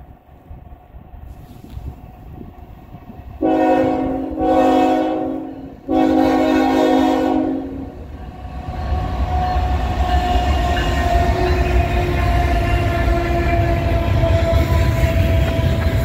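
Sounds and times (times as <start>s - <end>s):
diesel locomotive rumble: 0.0s - 16.0s
train horn blasts: 3.4s - 8.0s, 9.0s - 16.0s.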